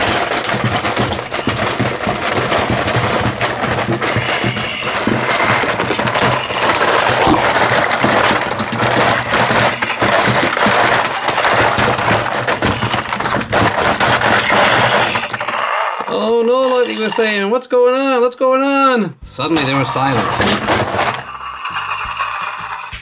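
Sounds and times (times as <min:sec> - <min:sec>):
clicks and knocks: 0:00.0 - 0:16.8.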